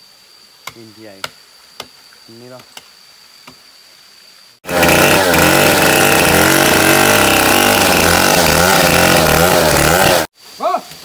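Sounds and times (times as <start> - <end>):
chainsaw running at high revs: 4.6 - 10.3.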